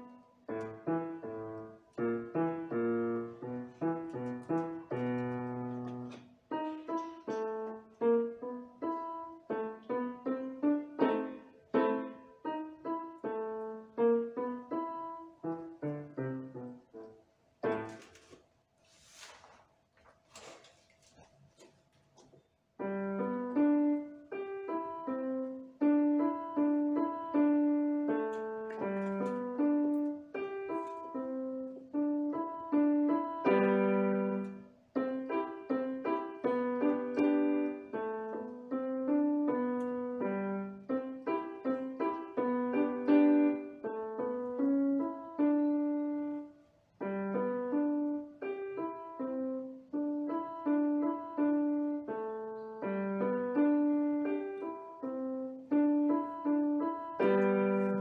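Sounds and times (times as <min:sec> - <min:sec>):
electronic keyboard piano notes: 0:00.0 - 0:18.1, 0:22.8 - 0:58.0.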